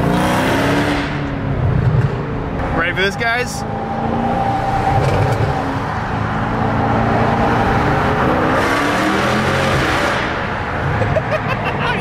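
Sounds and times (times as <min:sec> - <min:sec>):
car engine accelerating hard: 0:03.6 - 0:11.0.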